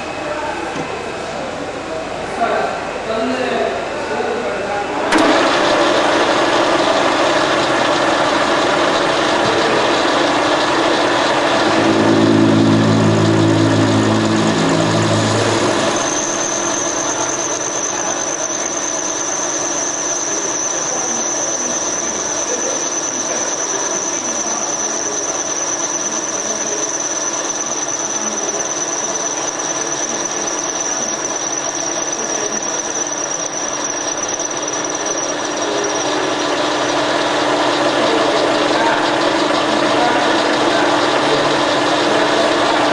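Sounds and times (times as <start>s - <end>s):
high-pitched cutting squeal: 5.1s - 42.9s
metal lathe running: 5.1s - 42.9s
low droning tone: 10.4s - 18.5s.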